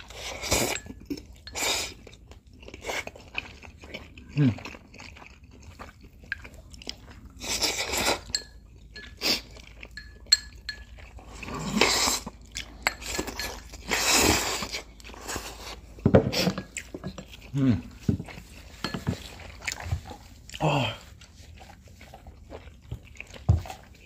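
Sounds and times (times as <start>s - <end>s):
noodles slurped: 0.0s - 8.4s, 9.0s - 10.1s, 11.1s - 24.0s
chewing: 0.0s - 24.0s.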